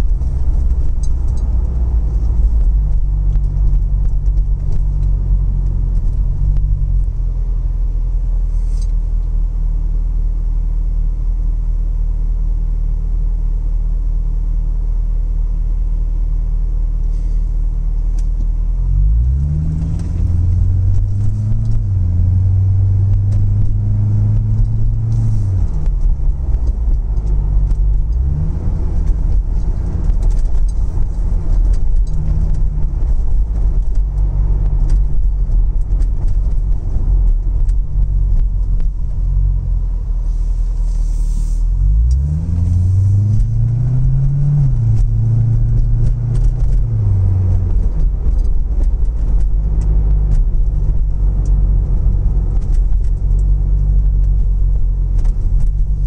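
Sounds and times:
car engine: 0.0 - 56.0
road noise: 0.0 - 56.0.

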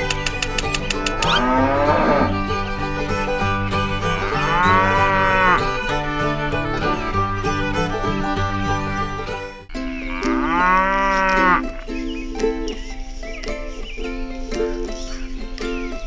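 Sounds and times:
background music: 0.0 - 16.0
cow mooing: 1.0 - 2.4, 4.2 - 5.7, 10.1 - 11.7.

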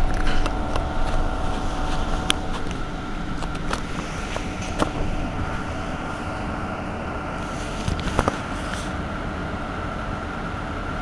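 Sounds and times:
low rumble: 0.0 - 10.4
bus equipment humming: 0.0 - 11.0.

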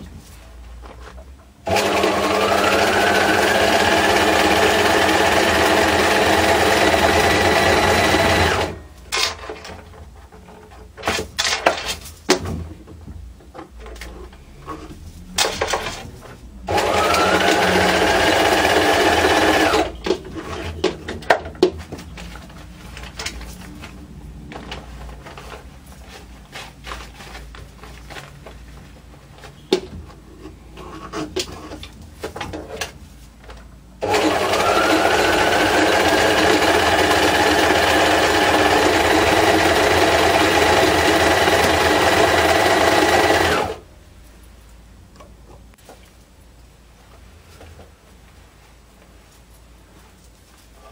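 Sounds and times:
sewing machine stitching: 1.7 - 8.8, 16.7 - 20.9, 34.0 - 43.8.

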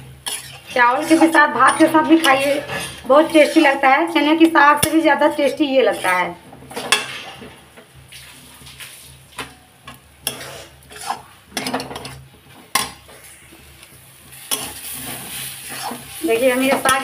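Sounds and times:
metal spatula scraping pan: 0.0 - 13.3, 14.3 - 17.0.

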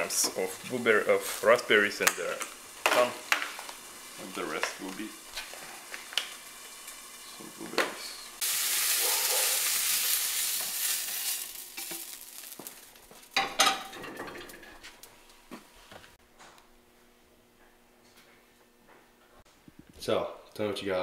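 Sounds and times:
food sizzling in a frying pan: 0.0 - 14.8
metal utensil clanking on pan: 13.4 - 14.7.

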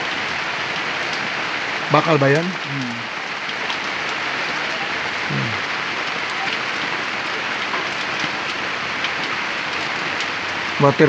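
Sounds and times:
steady rain hiss: 0.0 - 11.0
short voice sound: 2.7 - 3.0, 5.3 - 5.6.

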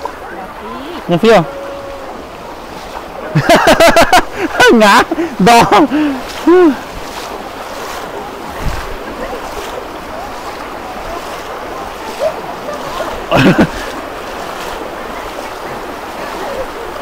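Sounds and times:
floodwater rushing: 0.0 - 17.0
person calling out: 0.7 - 2.2.

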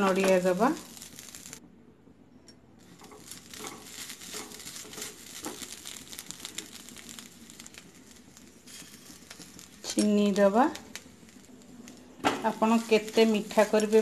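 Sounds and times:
spatula scraping in a pan: 2.9 - 14.0.

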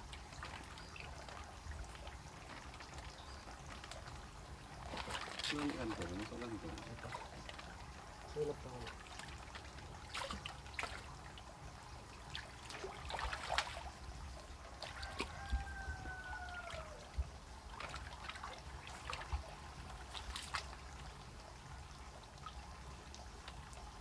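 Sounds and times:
water splashing and trickling: 0.0 - 24.0.

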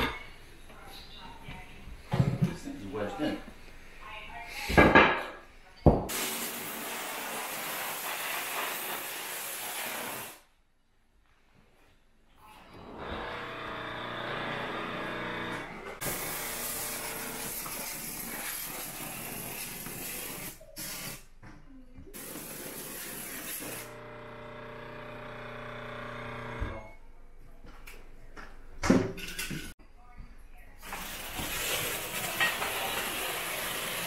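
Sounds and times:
steam cleaner humming: 6.1 - 10.4, 13.8 - 21.0, 22.2 - 26.2, 30.8 - 34.0.

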